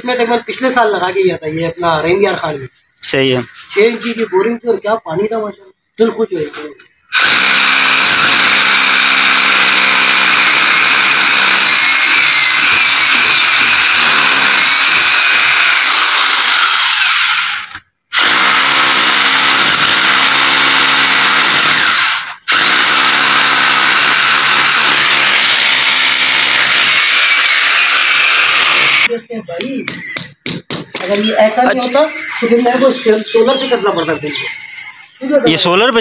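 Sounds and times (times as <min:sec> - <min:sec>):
electric drill boring into cement: 0:07.1 - 0:29.1.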